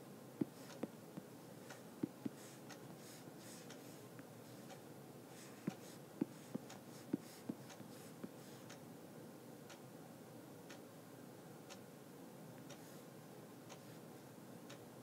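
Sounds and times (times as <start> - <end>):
room hiss: 0.0 - 15.0
soft taps and clicks: 0.4 - 2.4, 5.6 - 8.4.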